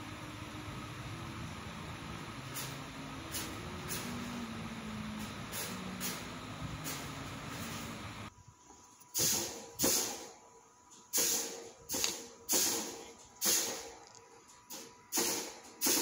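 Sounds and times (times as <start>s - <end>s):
laser engraver fan noise: 0.0s - 8.6s
stepper motors humming: 0.0s - 8.6s
short hissing bursts: 2.4s - 8.3s, 9.1s - 10.4s, 11.1s - 14.0s, 15.1s - 16.0s.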